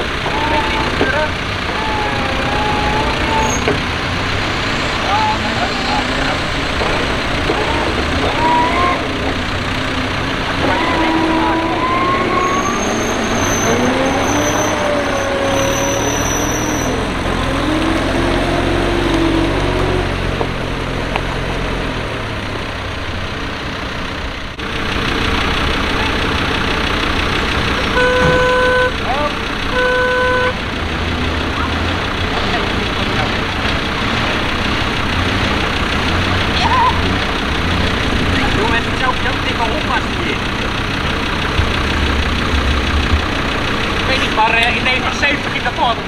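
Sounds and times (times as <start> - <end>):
off-road engines running: 0.0 - 46.0
vehicle horn toot: 27.8 - 30.6.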